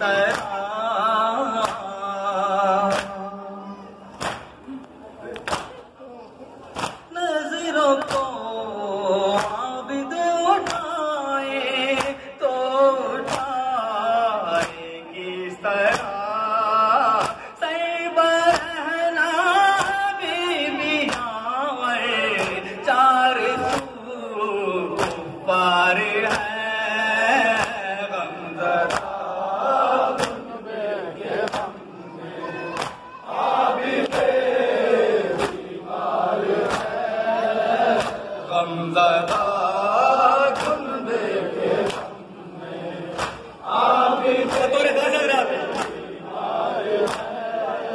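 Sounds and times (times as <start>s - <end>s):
man chanting into a microphone: 0.0s - 4.1s, 7.1s - 33.3s, 36.8s - 42.2s
hands beating on chests: 36.6s - 37.0s, 37.8s - 38.2s, 40.5s - 40.9s.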